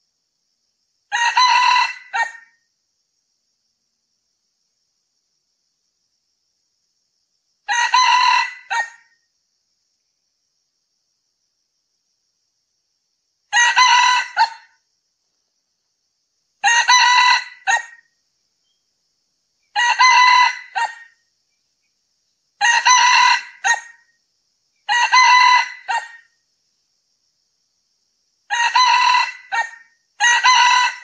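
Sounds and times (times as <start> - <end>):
rooster crowing: 1.1 - 2.5, 7.7 - 9.1, 13.5 - 14.7, 16.6 - 18.0, 19.8 - 21.2, 22.6 - 24.0, 24.9 - 26.3, 28.5 - 31.0.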